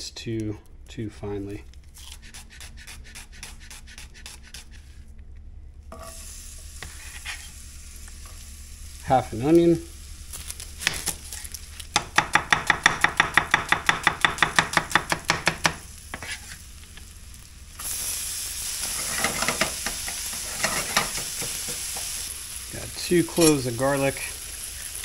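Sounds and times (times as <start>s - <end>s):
onion sizzling in a pan: 5.9s - 25.0s
wooden spatula scraping a pan: 6.8s - 7.6s, 16.1s - 16.7s, 18.8s - 22.1s
knife chopping on plastic board: 12.0s - 16.4s.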